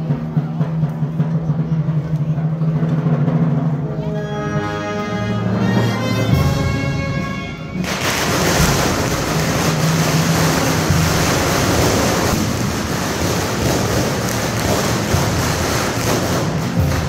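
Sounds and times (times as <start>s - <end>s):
brass band music: 3.7s - 17.0s
dense rushing noise: 7.8s - 17.0s.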